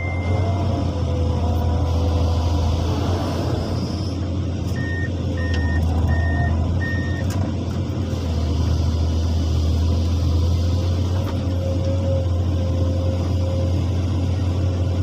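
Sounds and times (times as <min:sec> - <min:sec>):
high warning beeps: 0:00.0 - 0:00.6
excavator diesel engine running: 0:00.0 - 0:15.0.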